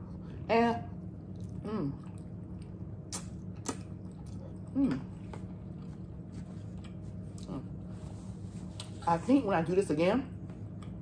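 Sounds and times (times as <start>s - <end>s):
steady low hum: 0.0s - 11.0s
wet mouth smacks: 3.0s - 4.4s.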